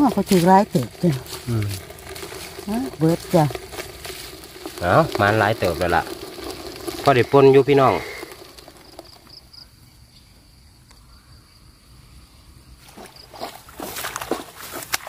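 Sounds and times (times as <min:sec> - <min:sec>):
rustling and splashing: 0:00.0 - 0:09.6, 0:12.8 - 0:15.0.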